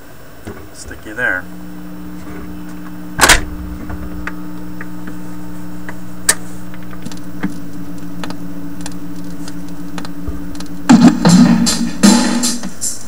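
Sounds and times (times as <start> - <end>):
record player mains hum: 0.0 - 13.0
loud click: 2.8 - 4.9.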